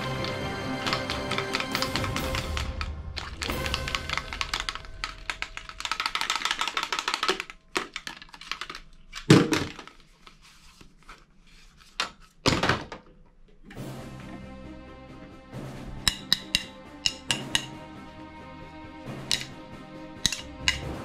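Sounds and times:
plastic toy clicking and rattling: 0:00.0 - 0:10.1, 0:16.1 - 0:17.7, 0:19.2 - 0:19.5, 0:20.2 - 0:21.0
toys thunking onto toy pile: 0:01.0 - 0:10.0, 0:12.4 - 0:13.1.

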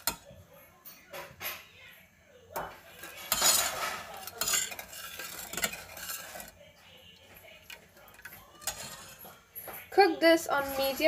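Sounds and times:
metal spoon stirring in saucepan: 0:00.0 - 0:01.9, 0:02.5 - 0:11.0
spoon scraping and clinking pan: 0:02.6 - 0:06.6, 0:07.7 - 0:09.5.

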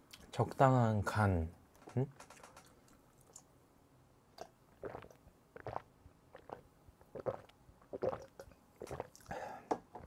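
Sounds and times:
person gulping drink: 0:04.4 - 0:09.4.

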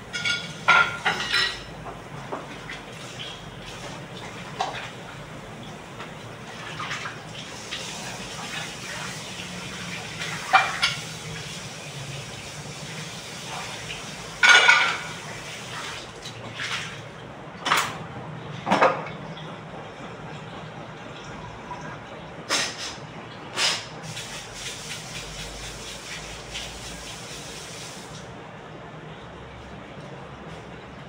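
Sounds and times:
dishes and cutlery clattering: 0:00.1 - 0:02.4, 0:10.4 - 0:11.1, 0:14.4 - 0:15.2.

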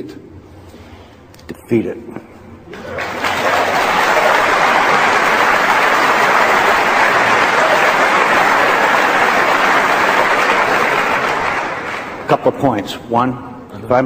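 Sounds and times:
audience applauding: 0:02.7 - 0:12.4.

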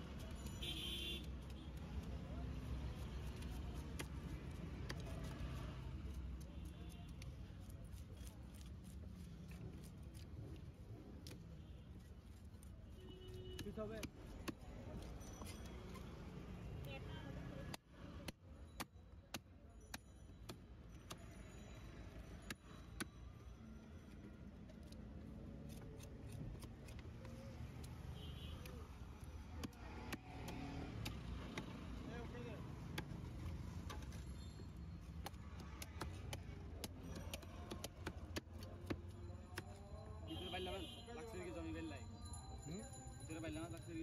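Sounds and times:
knife scraping fish scales: 0:07.6 - 0:10.4.

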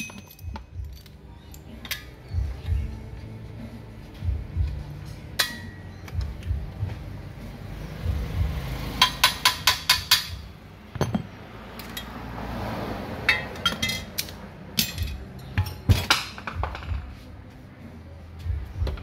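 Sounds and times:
tools clinking on metal: 0:00.0 - 0:02.4, 0:05.3 - 0:06.2, 0:09.0 - 0:12.2, 0:13.3 - 0:17.0.

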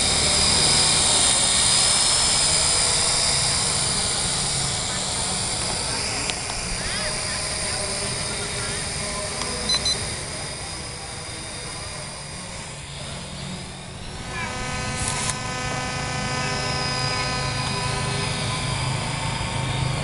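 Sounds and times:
drone propellers buzzing whine: 0:00.0 - 0:20.0
short high electronic beeps: 0:09.7 - 0:10.1.

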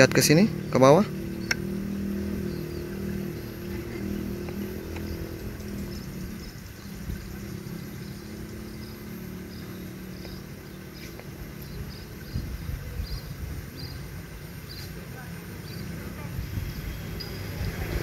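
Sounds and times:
road traffic hum: 0:00.0 - 0:18.0.

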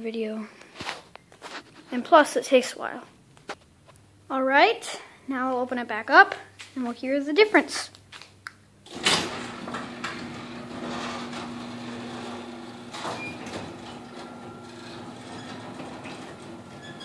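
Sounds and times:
garage door motor hum: 0:08.8 - 0:17.0
garage door opener click: 0:08.8 - 0:17.0.

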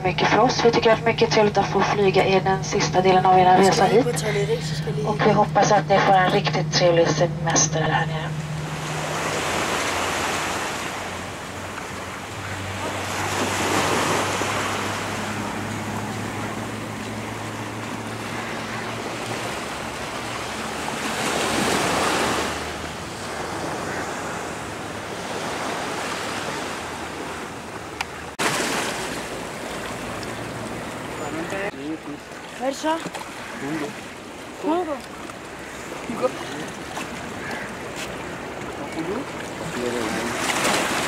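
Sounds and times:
waves breaking on beach: 0:00.0 - 0:41.0.

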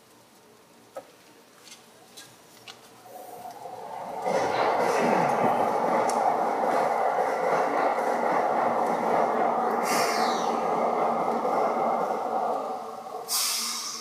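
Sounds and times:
electric train running rumble: 0:03.0 - 0:14.0
air hiss: 0:09.8 - 0:10.6, 0:12.7 - 0:14.0.

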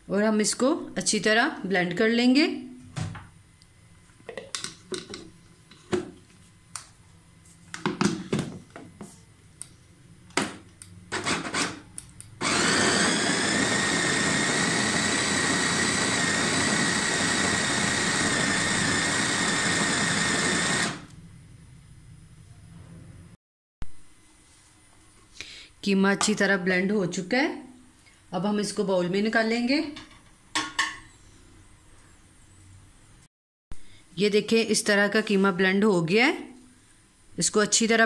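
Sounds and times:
food chopper motor whining: 0:11.1 - 0:11.8, 0:12.4 - 0:21.2.

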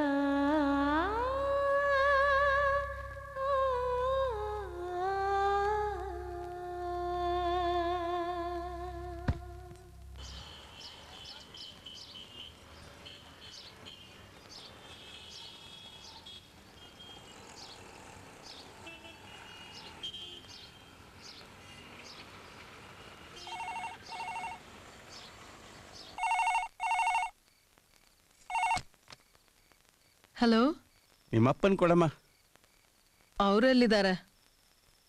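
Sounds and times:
telephone ringing: 0:23.4 - 0:24.6, 0:26.2 - 0:27.3, 0:28.5 - 0:28.8.

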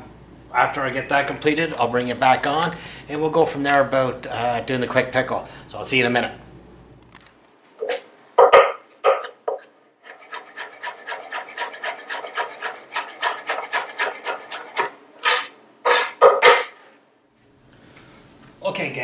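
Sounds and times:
knife cutting on wooden board: 0:09.1 - 0:16.7.

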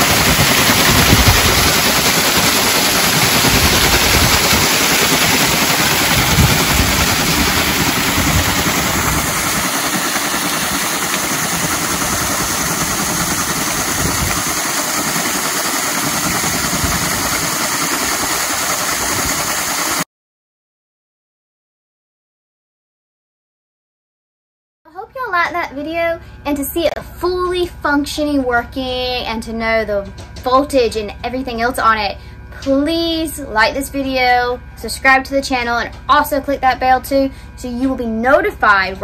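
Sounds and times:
water pouring over waterwheel: 0:00.0 - 0:20.0.

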